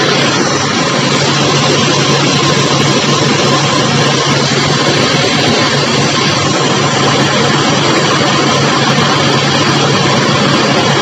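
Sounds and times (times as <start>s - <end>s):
pressure washer motor hum: 0.0s - 11.0s.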